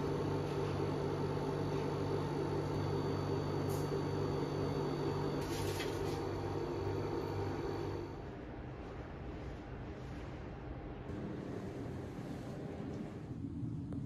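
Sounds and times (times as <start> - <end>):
vending machine hum: 0.0 - 14.0.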